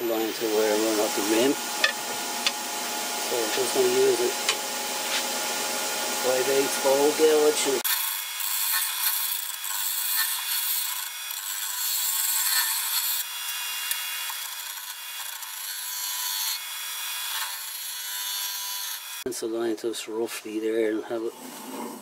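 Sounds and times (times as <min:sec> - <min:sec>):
lathe humming: 0:00.0 - 0:19.2
gouge scraping wood on a lathe: 0:06.3 - 0:16.6.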